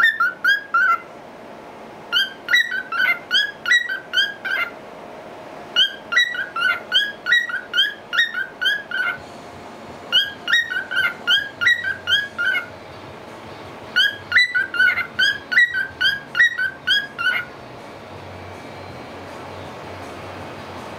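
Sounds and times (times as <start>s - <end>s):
cockatiel whistling: 0.0s - 1.1s, 2.1s - 4.8s, 5.8s - 9.2s, 10.1s - 12.7s, 13.9s - 17.5s.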